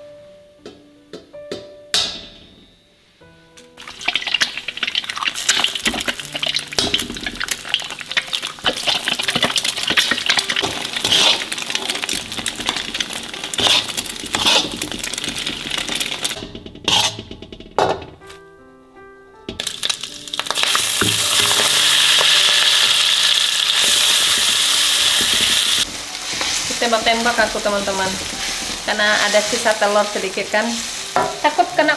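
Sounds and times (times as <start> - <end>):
egg sizzling in hot oil: 3.8 - 17.2, 19.6 - 31.9
metal spatula scraping pan: 6.3 - 17.6, 23.8 - 31.9.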